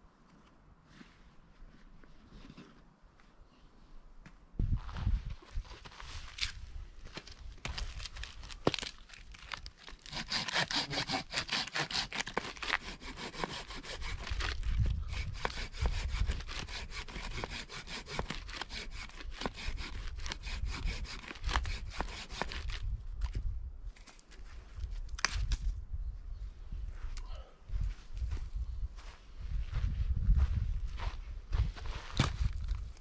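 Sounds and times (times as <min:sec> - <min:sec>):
hand saw cutting wood: 0:10.0 - 0:22.8.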